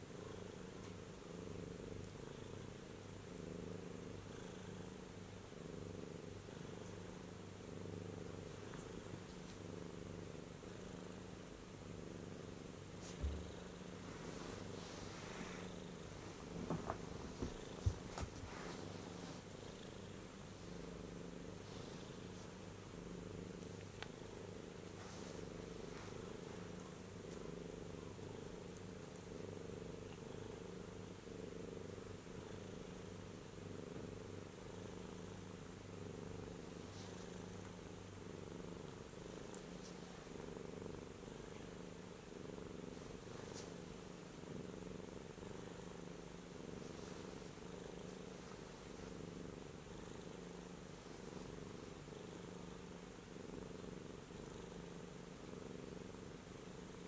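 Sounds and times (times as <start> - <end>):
cat purring: 0.0 - 57.0
faint ticks: 23.6 - 24.2, 39.4 - 39.9.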